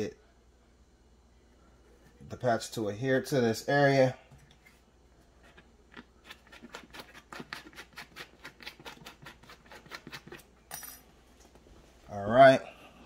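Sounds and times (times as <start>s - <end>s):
scraper rasping on rubber tube: 6.2s - 10.4s.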